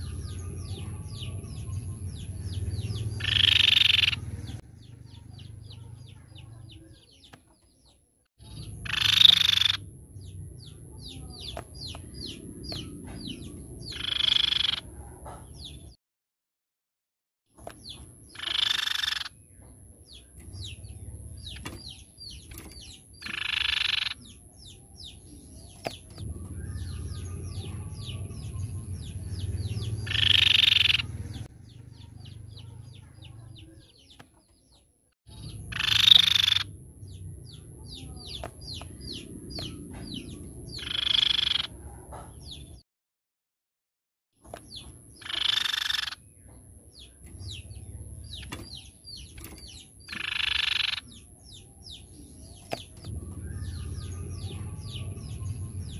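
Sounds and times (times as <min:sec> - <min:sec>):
harsh bird call: 0:02.5 - 0:04.6, 0:18.3 - 0:19.4, 0:25.7 - 0:33.8, 0:35.3 - 0:36.8.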